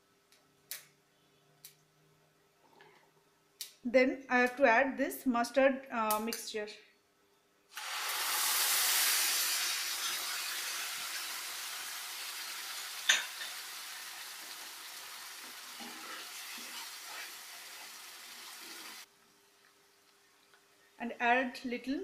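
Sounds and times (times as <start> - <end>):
mixture sizzling in hot oil: 7.7 - 19.1.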